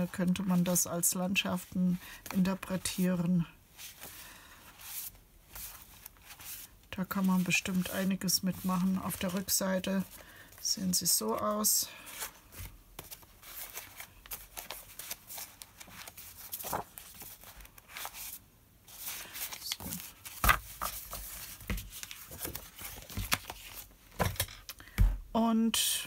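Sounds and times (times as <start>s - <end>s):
paper rustling and flapping: 11.2s - 24.5s.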